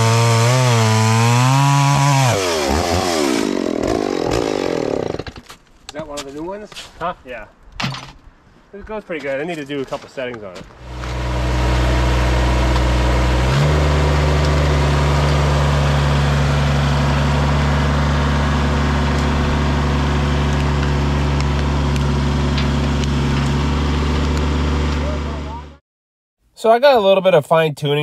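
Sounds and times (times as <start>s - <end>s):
tractor diesel engine running: 10.8s - 25.8s.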